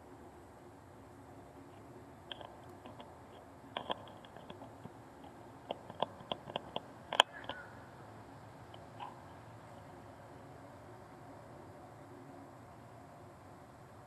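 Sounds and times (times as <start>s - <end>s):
faint steady background: 0.0s - 14.0s
sharp clicks and ticks: 1.7s - 7.6s.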